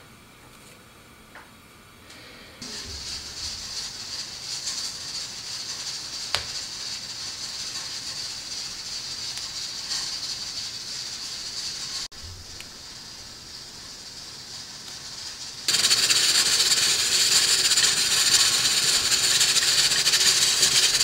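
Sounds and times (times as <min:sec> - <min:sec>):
steady high hiss: 0:01.8 - 0:21.0.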